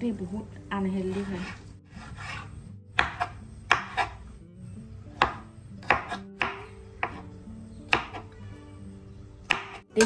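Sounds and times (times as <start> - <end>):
knife chopping on wooden board: 1.2 - 4.2, 5.2 - 7.3, 7.9 - 8.3, 9.5 - 10.0.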